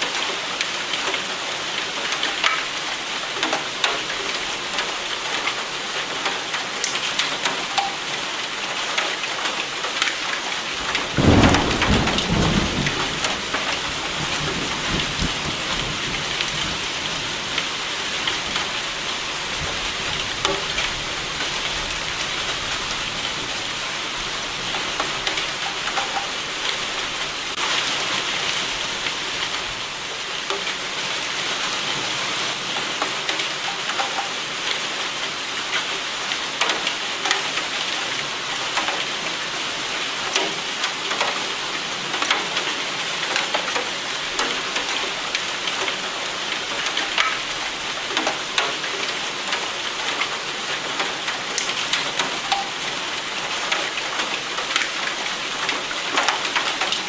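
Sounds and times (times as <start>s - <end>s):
heavy rain: 0.0s - 57.0s
thunder rumbling: 10.9s - 17.3s.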